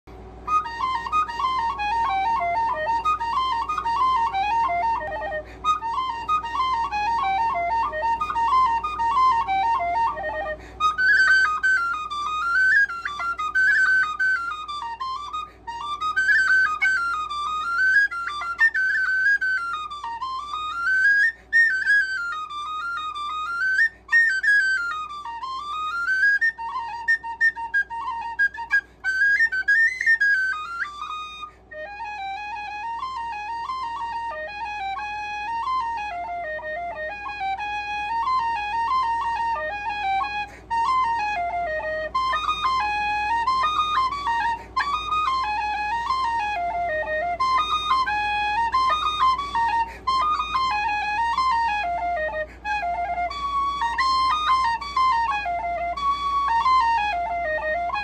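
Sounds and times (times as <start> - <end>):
tin whistle playing fast tune: 0.4 - 58.0.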